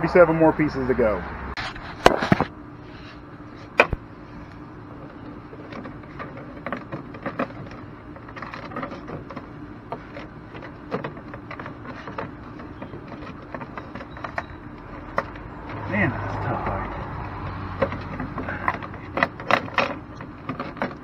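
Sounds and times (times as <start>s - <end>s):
plastic panels clicking and rattling: 5.0s - 15.8s, 16.4s - 21.0s.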